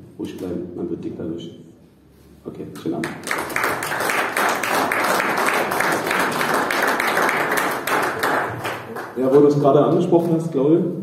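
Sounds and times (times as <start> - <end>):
crowd applauding: 3.0 - 9.6.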